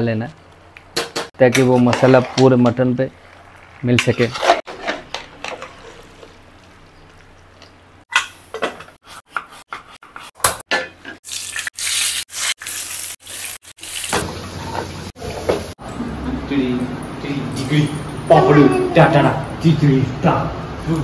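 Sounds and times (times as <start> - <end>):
hot oil sizzling: 0.5 - 8.6, 11.2 - 15.8.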